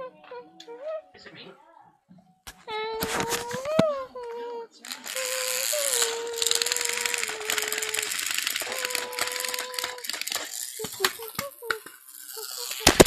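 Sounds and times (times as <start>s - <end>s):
toy train motor whirring: 2.7s - 13.0s.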